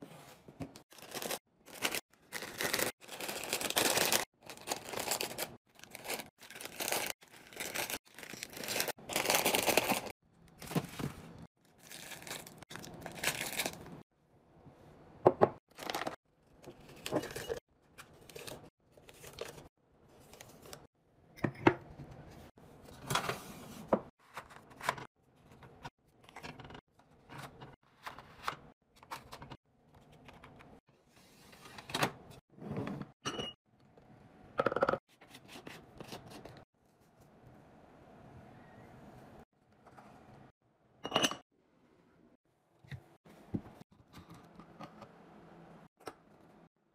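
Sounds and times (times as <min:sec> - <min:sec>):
plastic wrappers crinkling: 0:00.9 - 0:10.8, 0:11.7 - 0:14.0.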